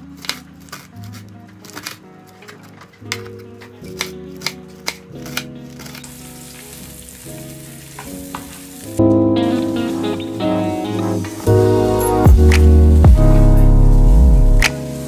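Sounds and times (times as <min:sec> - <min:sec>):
background music: 0:00.0 - 0:15.0
food sizzling in hot oil: 0:05.7 - 0:15.0.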